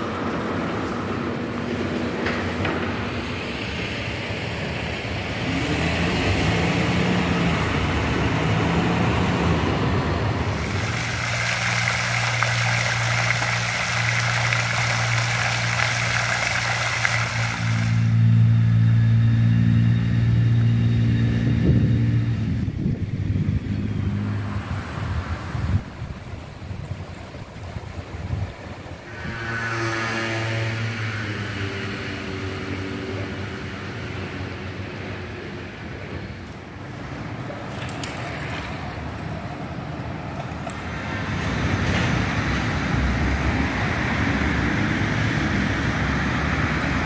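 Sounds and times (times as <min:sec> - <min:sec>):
vehicle engines accelerating: 0:00.0 - 0:27.0, 0:27.6 - 0:47.0
traffic hiss: 0:08.1 - 0:18.4.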